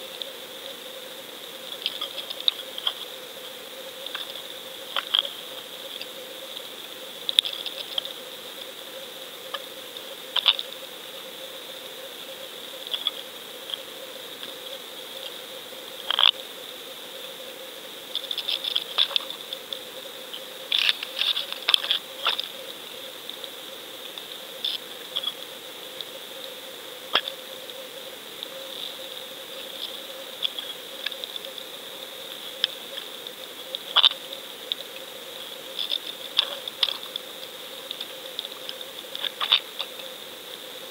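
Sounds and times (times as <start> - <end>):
sharp clicks and crackles: 1.7 - 3.2, 4.0 - 8.2, 10.3 - 10.7, 12.8 - 13.8, 16.0 - 16.4, 18.1 - 19.8, 20.7 - 22.6, 28.4 - 31.7, 32.6 - 35.1, 35.7 - 40.6.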